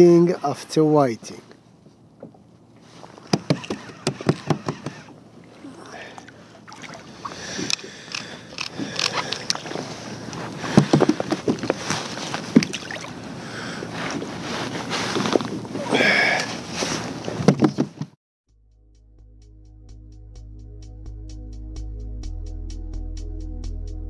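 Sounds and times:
fishing tackle knocking and clattering: 0:03.3 - 0:05.0.

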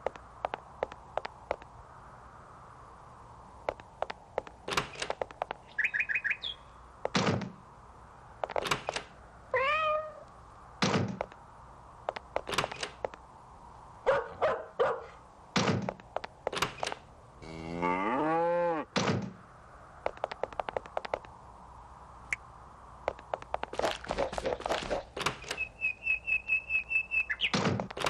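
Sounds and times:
doors knocking and banging shut: 0:07.1 - 0:07.6, 0:10.8 - 0:11.3, 0:15.6 - 0:17.0, 0:19.0 - 0:19.4
cat meowing: 0:09.5 - 0:10.3
cow mooing: 0:17.4 - 0:18.9.

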